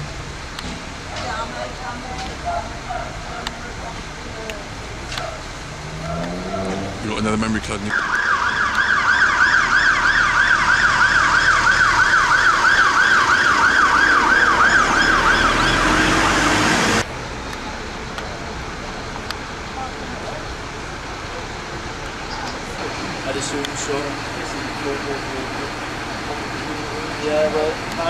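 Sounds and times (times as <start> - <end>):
engine noise: 0.0 - 28.0
siren yelping: 7.9 - 17.0.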